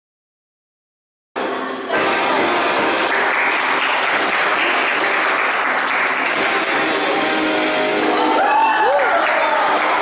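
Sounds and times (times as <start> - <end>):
audience clapping: 2.4 - 10.0.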